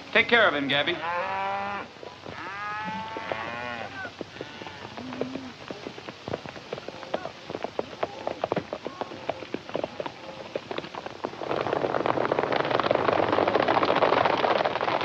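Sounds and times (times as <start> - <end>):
hoofbeats on dirt: 0.0 - 15.0
horse whinnying: 1.2 - 5.6
footsteps on dirt: 1.9 - 12.8.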